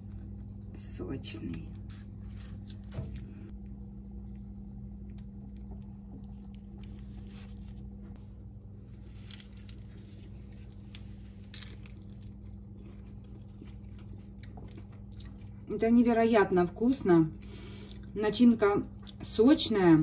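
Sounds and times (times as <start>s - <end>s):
steady low hum: 0.0s - 20.0s
flatbread crackling and rustling: 5.0s - 15.0s.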